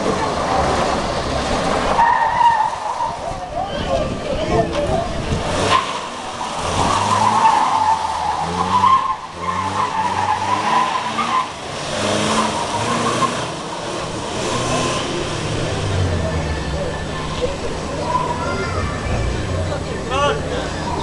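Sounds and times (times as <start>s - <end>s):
car engine revving hard: 5.3s - 21.0s
tyres squealing: 5.6s - 21.0s.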